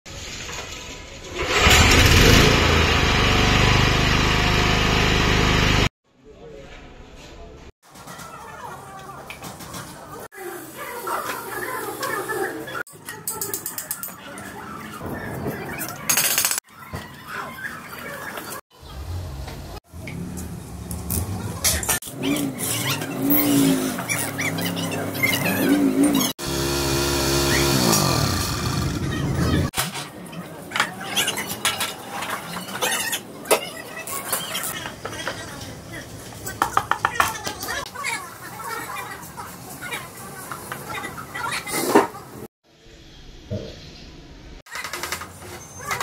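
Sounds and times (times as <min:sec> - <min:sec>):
generator engine pull-started: 0:01.3 - 0:05.9, 0:26.4 - 0:29.5.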